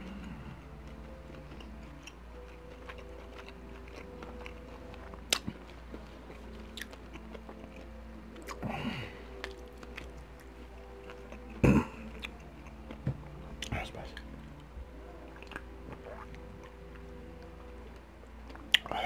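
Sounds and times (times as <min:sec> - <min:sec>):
person chewing food: 0:00.0 - 0:19.0
person humming low: 0:08.4 - 0:16.6.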